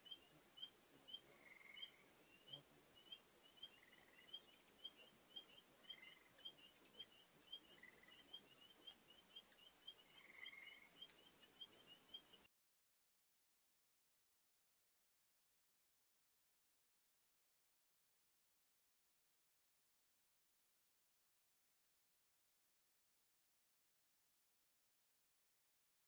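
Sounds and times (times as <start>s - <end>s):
hummingbirds chirping: 0.0s - 12.5s.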